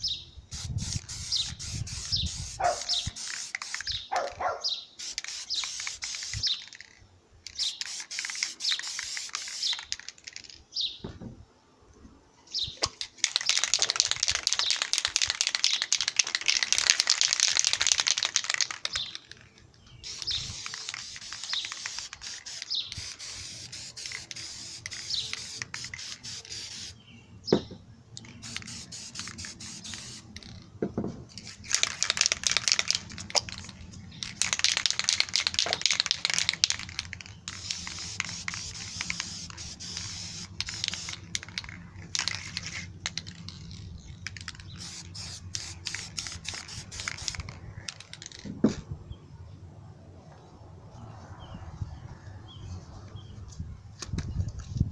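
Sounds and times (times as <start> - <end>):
aerosol spray can hissing: 0.5 - 4.0, 5.0 - 6.7, 7.5 - 10.0, 20.0 - 27.0, 28.3 - 30.6, 34.3 - 41.6, 44.6 - 47.5.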